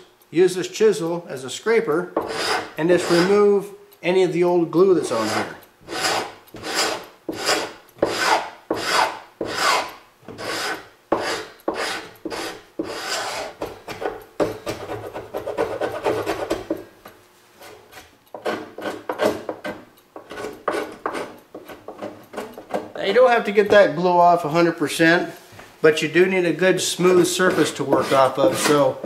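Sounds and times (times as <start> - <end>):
chisel rasping glue off wood: 2.2 - 3.4, 5.1 - 16.8, 17.9 - 22.9, 27.1 - 29.0.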